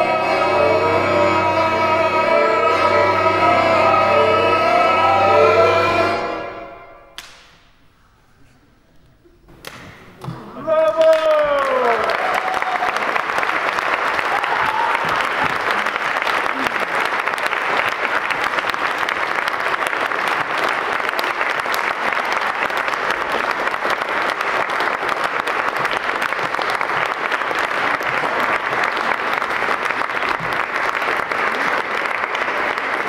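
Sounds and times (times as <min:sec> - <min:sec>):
audience applauding: 0:09.7 - 0:33.0.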